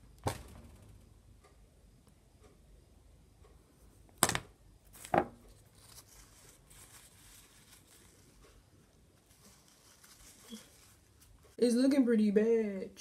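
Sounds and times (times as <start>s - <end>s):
faint rustling: 4.8s - 11.6s.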